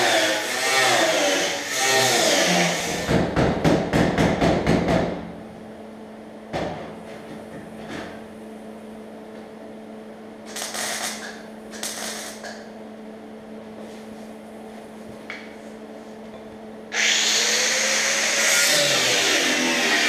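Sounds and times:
steady hum: 0.0 - 20.0
cut-off wheel cutting steel: 16.9 - 20.0.

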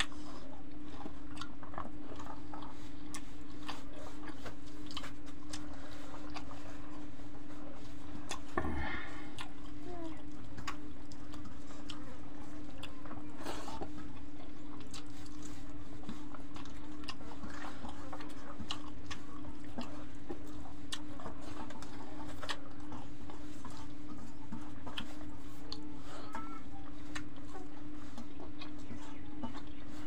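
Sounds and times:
people chewing and lip-smacking: 0.0 - 30.0
steady low hum: 0.0 - 30.0.

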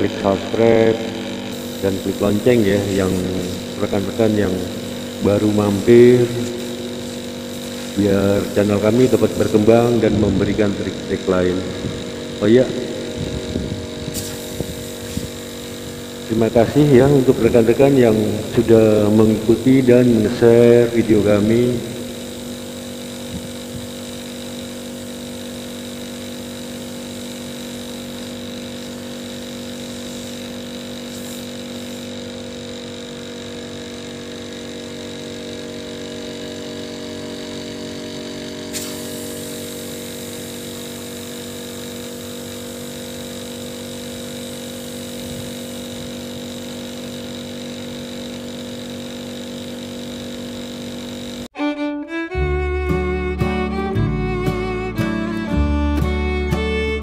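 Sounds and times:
refrigerator compressor humming: 0.0 - 57.0
string music: 51.6 - 57.0.

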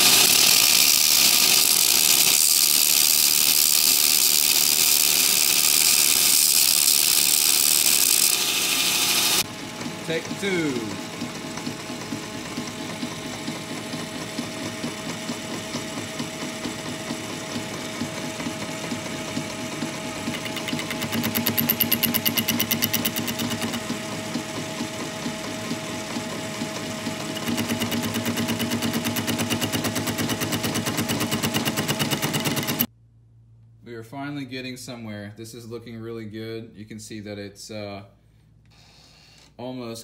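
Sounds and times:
metal lathe cutting chatter: 0.0 - 9.4, 19.0 - 24.1, 26.7 - 32.9.

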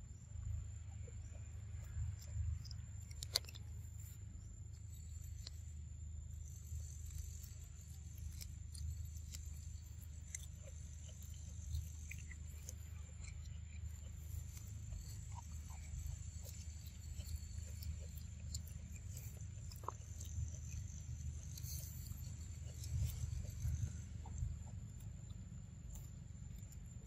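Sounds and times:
small clicks: 2.1 - 5.6.

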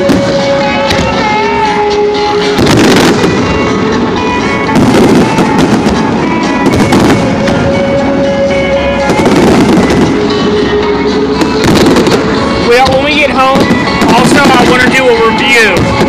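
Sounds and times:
fireworks bursting: 0.0 - 16.0
fireworks crackling: 0.0 - 16.0
music with long held notes: 0.0 - 16.0.

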